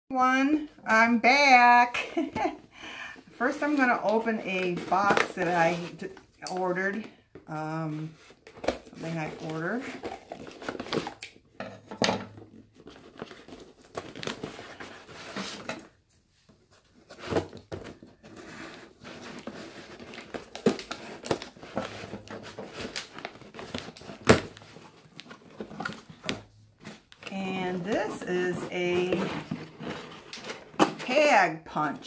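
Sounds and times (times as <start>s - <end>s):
cardboard box rustling and crinkling: 7.9s - 11.2s, 12.5s - 31.2s.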